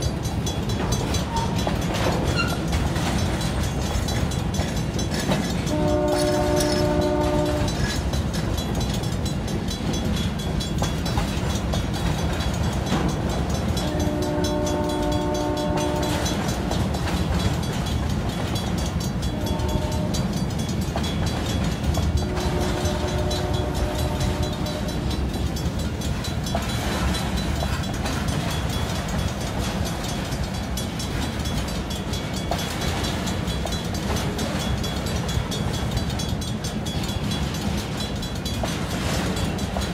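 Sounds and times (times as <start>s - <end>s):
freight cars rumbling and clattering: 0.0s - 39.9s
locomotive air horn blasts: 5.7s - 7.8s, 13.8s - 16.4s, 19.3s - 20.2s, 22.2s - 25.1s.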